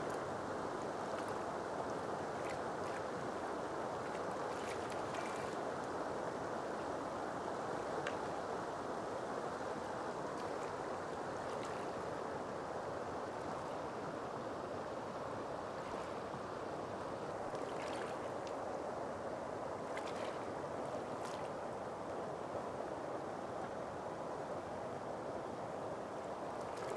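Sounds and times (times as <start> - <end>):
shallow water rushing: 0.0 - 26.9
splashing from wading: 4.0 - 5.6, 17.4 - 18.6, 19.8 - 21.6.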